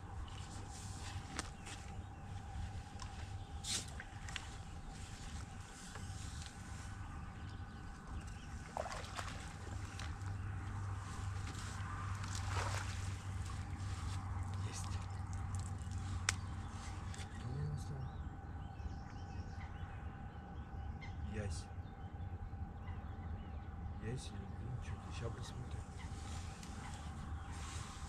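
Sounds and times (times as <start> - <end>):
low hum: 0.0 - 28.0
water sloshing and splashing: 0.2 - 17.2
sharp splash or knock: 8.7 - 9.6, 12.4 - 13.0.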